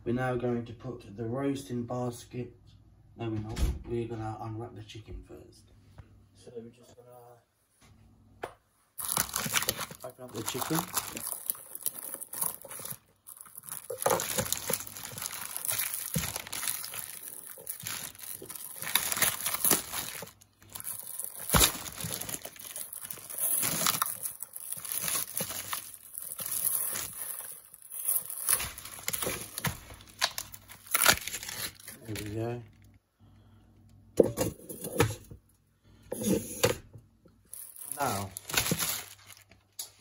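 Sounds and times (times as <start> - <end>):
plastic wrapping crinkling: 9.0 - 32.9, 37.4 - 40.0.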